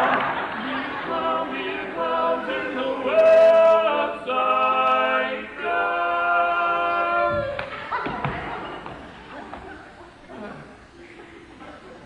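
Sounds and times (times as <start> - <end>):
male vocal quartet singing: 0.6 - 7.6.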